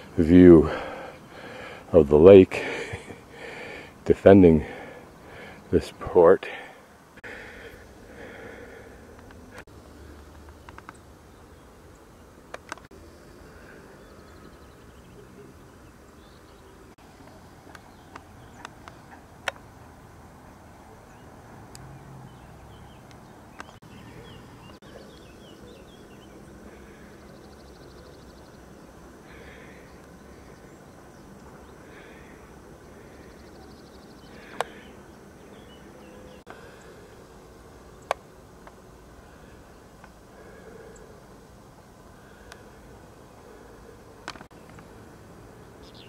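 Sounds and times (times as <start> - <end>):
faint outdoor ambience: 0.0 - 46.0
sharp clicks: 9.1 - 11.0.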